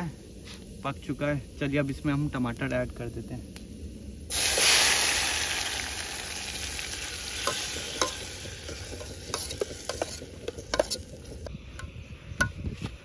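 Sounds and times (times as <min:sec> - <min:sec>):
tomatoes sizzling in hot oil: 0:00.0 - 0:11.5.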